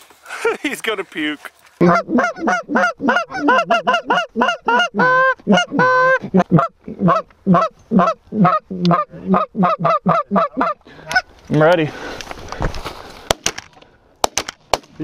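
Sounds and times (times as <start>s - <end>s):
drawn-out goose call honks: 1.8s - 11.3s
goose call clucks: 1.8s - 11.3s.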